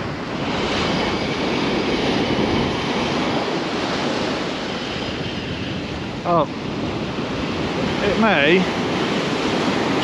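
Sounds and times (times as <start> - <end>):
breaking surf: 0.0 - 10.0
wind buffeting microphone: 0.0 - 10.0.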